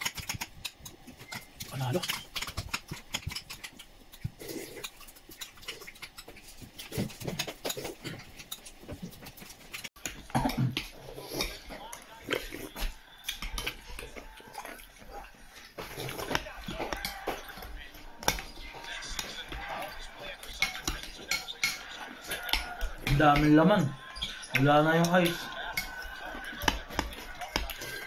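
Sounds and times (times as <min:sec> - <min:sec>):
chewing and slurping: 0:00.0 - 0:28.0
metal spoon clinking in a bowl: 0:16.8 - 0:23.5.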